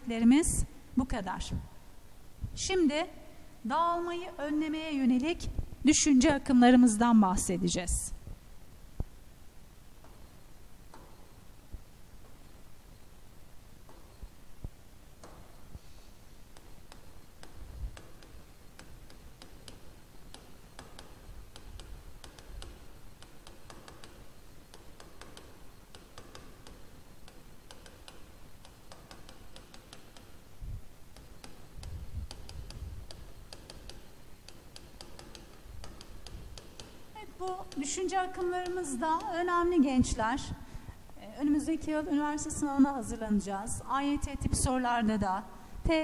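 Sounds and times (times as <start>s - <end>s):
pen tapping on whiteboard: 16.5s - 30.5s, 31.1s - 39.4s.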